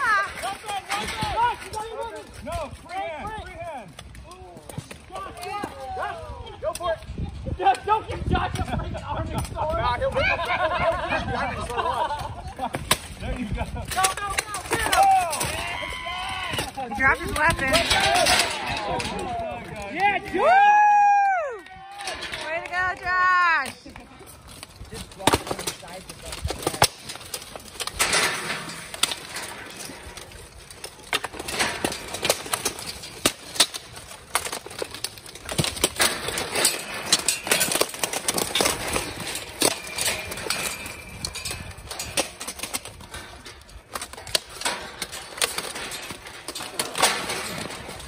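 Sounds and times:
armored bodies grappling: 0:10.9 - 0:19.8, 0:24.4 - 0:48.0
metal weapons clanking on armor: 0:25.2 - 0:48.0.

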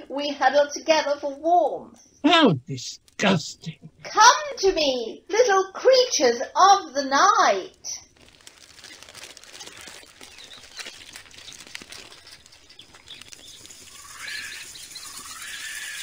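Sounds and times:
small creatures scurrying and fluttering: 0:08.0 - 0:16.0
high chirps: 0:09.6 - 0:16.0.

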